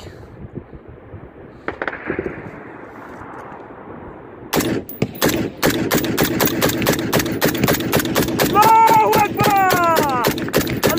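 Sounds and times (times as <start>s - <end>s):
gunfire volley: 1.6s - 2.5s, 4.5s - 10.9s.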